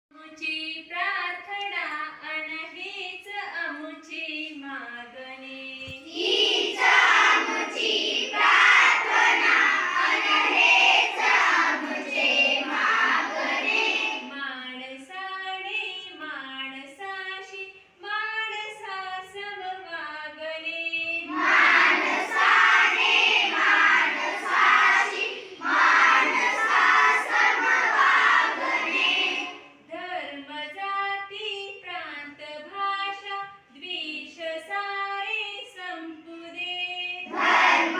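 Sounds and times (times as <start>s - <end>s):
children singing in unison: 6.0s - 14.3s, 21.2s - 29.7s, 37.2s - 37.9s.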